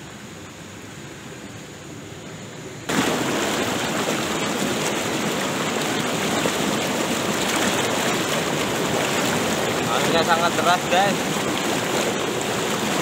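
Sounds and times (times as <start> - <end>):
calm water lapping: 0.2 - 13.0
river rapids rushing over rocks: 2.9 - 13.0.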